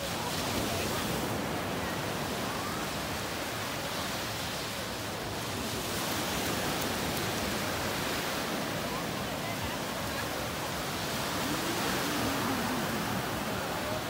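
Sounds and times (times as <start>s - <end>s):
surf breaking on sandy beach: 0.0s - 14.0s.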